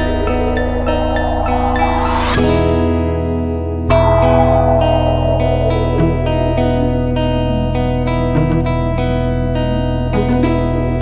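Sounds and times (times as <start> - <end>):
swelling whoosh: 0.0 - 8.0
steady bass: 0.0 - 9.0.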